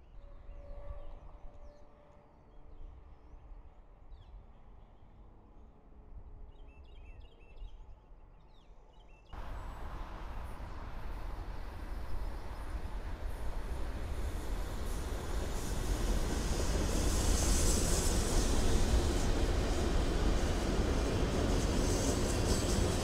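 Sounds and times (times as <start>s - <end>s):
diesel locomotive noise: 9.4s - 23.0s.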